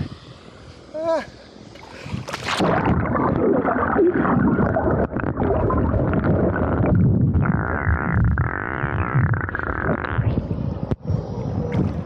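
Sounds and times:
muffled underwater sloshing: 0:01.9 - 0:07.4
buzzing hum: 0:02.4 - 0:12.0.

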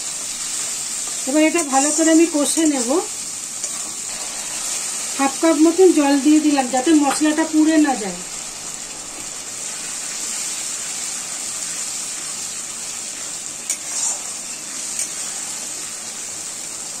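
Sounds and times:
spice paste sizzling in oil: 0:00.0 - 0:17.0
metal spatula scraping pan: 0:13.7 - 0:15.1.

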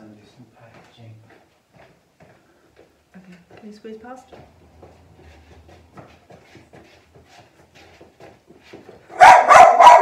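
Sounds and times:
dog barking loudly: 0:09.1 - 0:10.0.

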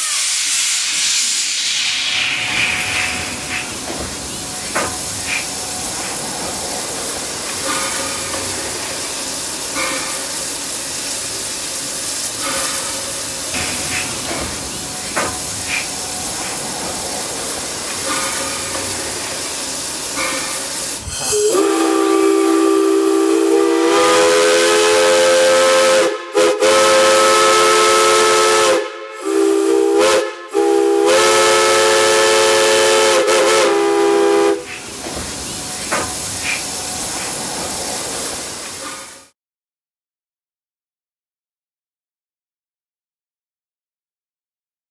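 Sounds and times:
steam hissing: 0:00.0 - 0:39.3
steam whistle chord: 0:21.1 - 0:34.7.

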